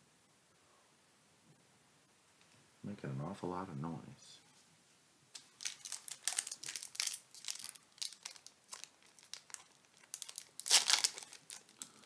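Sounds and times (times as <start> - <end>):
foil wrapper crinkling: 5.3 - 12.0
foil pack tearing open: 5.6 - 12.0.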